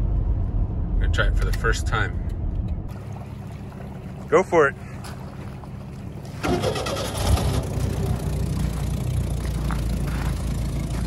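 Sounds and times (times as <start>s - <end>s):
boat engine starting and running: 2.7s - 11.0s.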